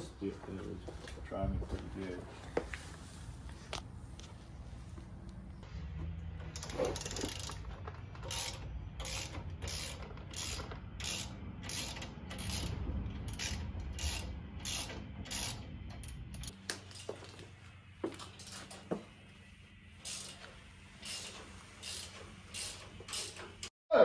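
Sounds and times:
ratchet wrench clicking: 0:06.5 - 0:17.1, 0:20.0 - 0:23.7.

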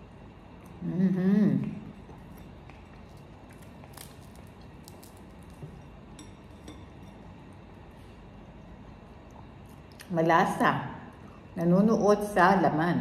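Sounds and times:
crunchy chewing: 0:01.9 - 0:10.1.

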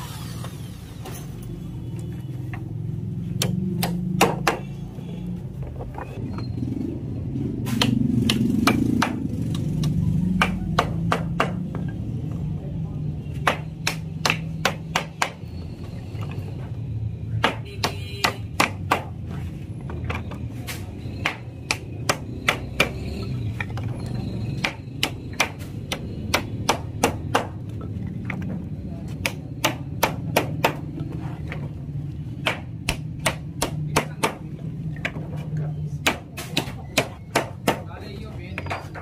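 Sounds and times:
hammer striking nails: 0:03.4 - 0:04.7, 0:29.2 - 0:30.8, 0:36.0 - 0:37.9.

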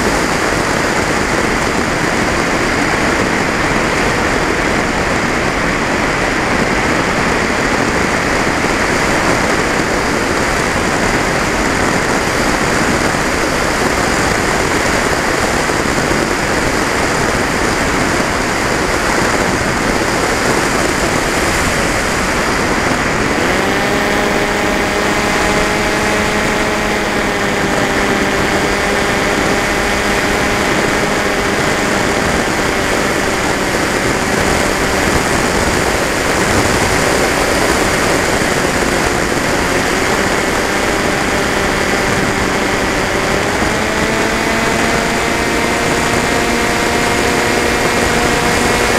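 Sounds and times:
motor whine: 0:00.0 - 0:48.9
wind and propeller noise: 0:00.0 - 0:48.9.

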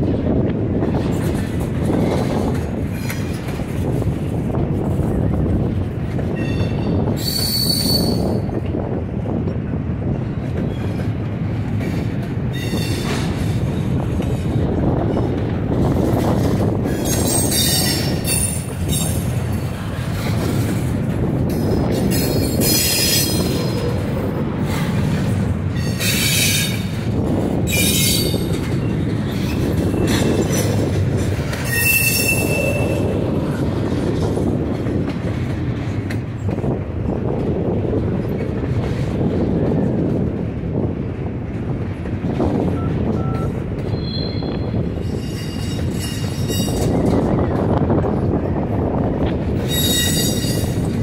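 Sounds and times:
train wheels rumbling on rail: 0:00.0 - 0:51.0
high-pitched wheel squeal: 0:06.4 - 0:08.5, 0:16.9 - 0:19.1, 0:27.7 - 0:28.4, 0:31.6 - 0:33.2, 0:43.2 - 0:46.9, 0:49.7 - 0:50.8.

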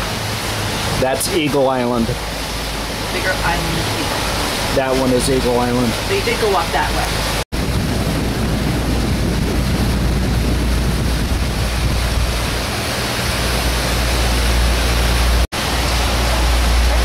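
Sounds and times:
deep engine rumble: 0:00.0 - 0:17.0
water rushing past boat: 0:00.0 - 0:17.0
wind rushing: 0:06.0 - 0:17.0.

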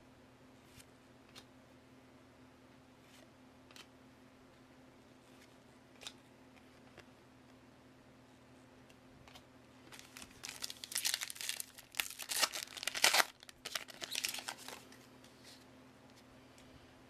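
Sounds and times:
plastic wrapper tearing and crinkling: 0:09.9 - 0:14.8.

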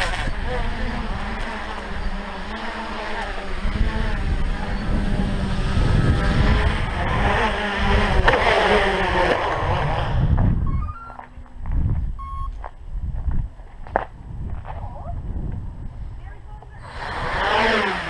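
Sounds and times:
drone motors whining: 0:00.0 - 0:12.7, 0:16.6 - 0:18.0
electronic beeps rising in pitch: 0:10.6 - 0:11.4, 0:12.2 - 0:12.6.

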